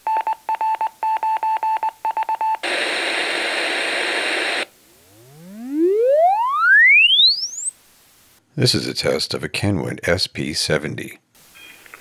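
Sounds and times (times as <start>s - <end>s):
pink noise hiss: 2.6s - 6.4s, 7.5s - 8.6s, 11.3s - 12.0s
rising tone frequency sweep: 4.9s - 7.7s.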